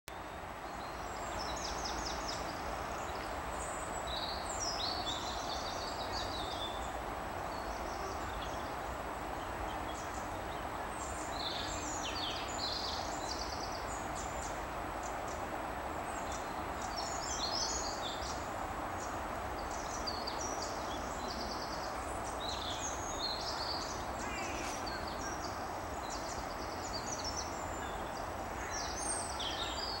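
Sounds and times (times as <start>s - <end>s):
outdoor background noise: 0.1s - 30.0s
songbirds calling: 0.1s - 30.0s.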